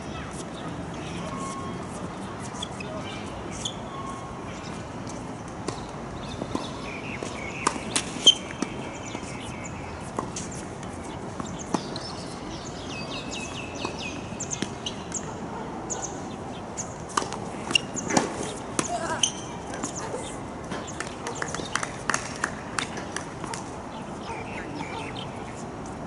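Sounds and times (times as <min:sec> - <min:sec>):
birds chirping: 0:00.0 - 0:21.9, 0:23.5 - 0:25.7
tennis balls struck by rackets: 0:05.1 - 0:09.3, 0:17.1 - 0:20.0.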